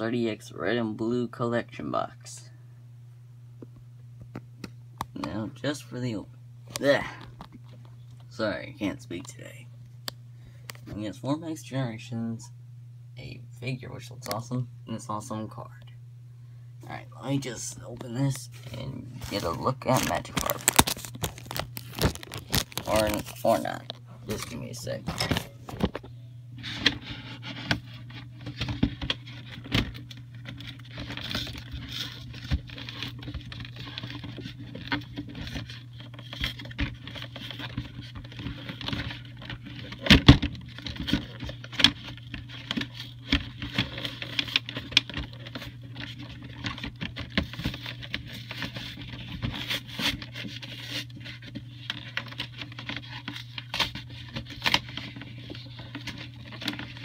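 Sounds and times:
steady low hum: 0.0 - 57.0
cardboard and plastic packaging taps: 20.0 - 23.4.

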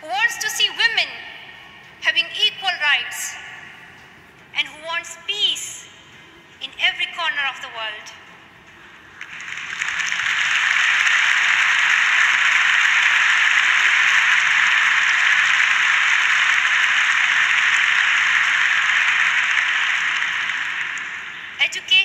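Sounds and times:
audience applauding: 9.0 - 21.6.

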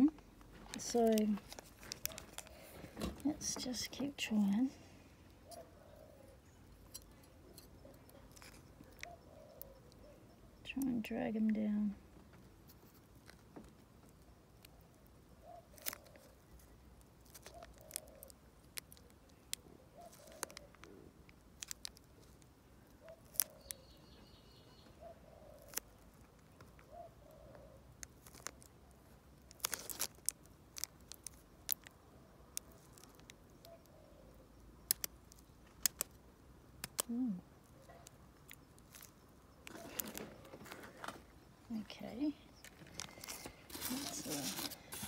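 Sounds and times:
plastic bag crinkling: 0.5 - 3.8, 29.4 - 33.4, 38.8 - 41.4, 42.6 - 45.0.

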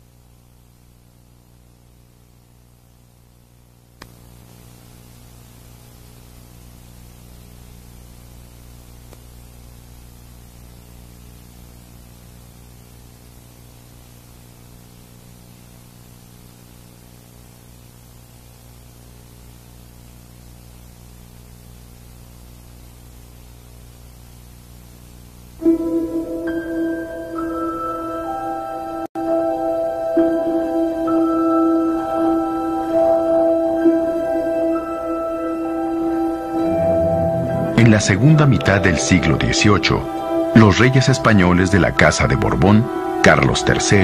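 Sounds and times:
electrical hum: 0.0 - 44.0
click: 4.0 - 4.2, 9.1 - 9.3.

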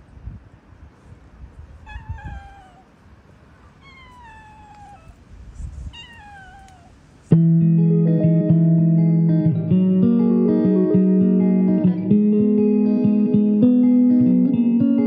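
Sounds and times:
cat meowing: 1.8 - 2.9, 3.8 - 5.2, 5.9 - 7.0
guitar music: 7.3 - 15.0.

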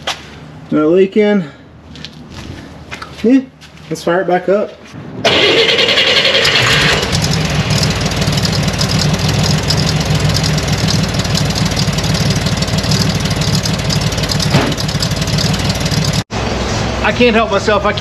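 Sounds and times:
engine cranking: 5.2 - 16.2
engine idling through exhaust: 5.3 - 16.2.

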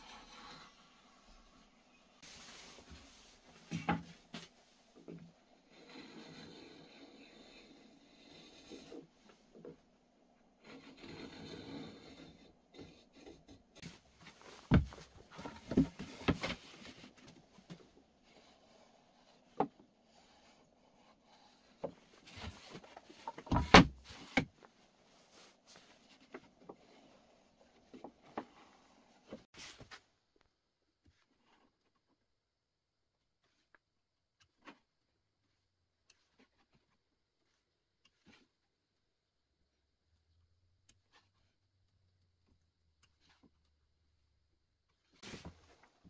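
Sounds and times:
marking gauge scraping wood: 5.6 - 9.1, 10.6 - 14.0.

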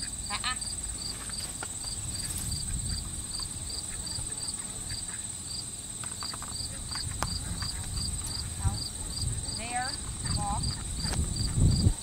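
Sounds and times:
insects buzzing and chirping: 0.0 - 12.0
wind rumble on microphone: 1.9 - 4.3, 6.6 - 12.0.

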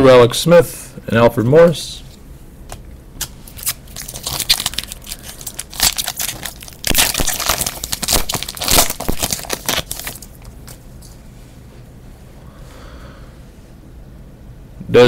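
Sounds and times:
foil wrapper tearing and crinkling: 3.2 - 10.8.

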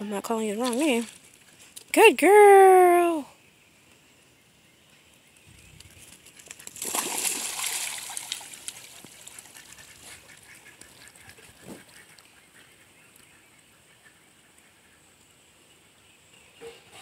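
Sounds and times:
dog swimming: 6.2 - 13.2
ducks splashing into water: 6.7 - 9.8
ducks quacking: 9.5 - 13.0.

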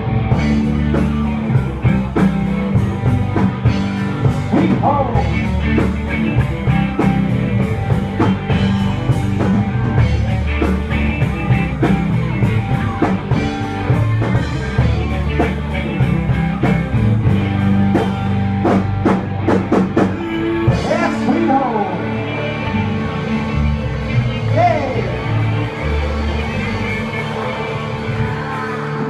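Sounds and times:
bass guitar: 0.0 - 29.0
drum kit: 0.0 - 29.0
electric guitar: 0.0 - 29.0.

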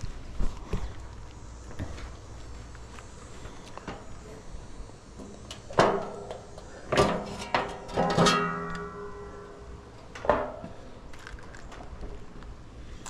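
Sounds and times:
metal fan guard clanking: 5.2 - 12.0.

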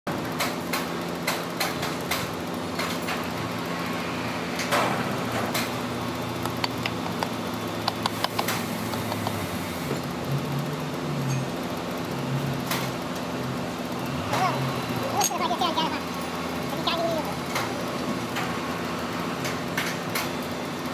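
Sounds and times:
workshop machinery hum: 0.1 - 20.9
sharp clicks: 6.4 - 9.4.

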